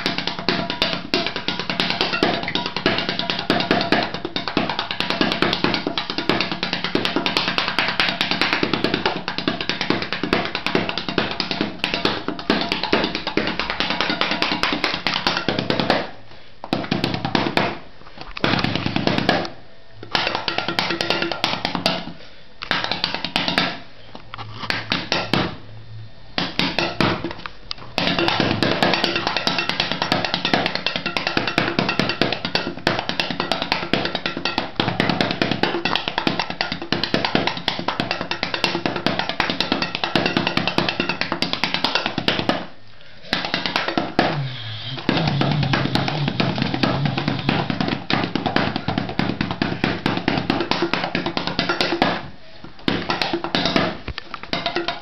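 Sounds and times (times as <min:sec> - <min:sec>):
drumming on empty chip cans: 0:00.0 - 0:23.9, 0:24.7 - 0:25.6, 0:26.4 - 0:55.0.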